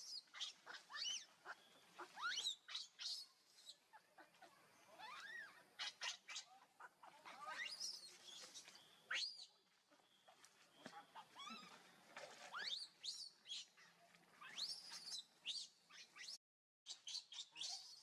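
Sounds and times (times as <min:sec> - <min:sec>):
infant monkey high-pitched squeals: 0:00.1 - 0:03.2, 0:04.9 - 0:08.1, 0:10.9 - 0:11.8, 0:12.5 - 0:13.6, 0:14.4 - 0:18.0.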